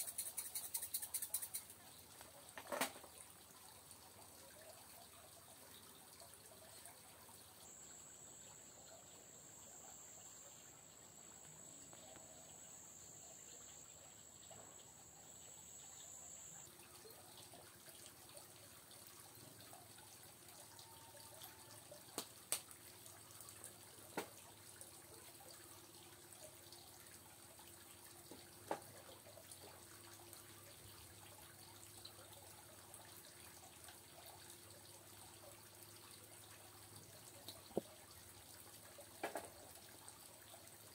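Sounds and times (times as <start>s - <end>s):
sharp clicks: 0.0s - 1.8s
thin high steady tone: 0.0s - 1.8s, 6.8s - 17.5s
water trickling and dripping: 0.0s - 40.9s.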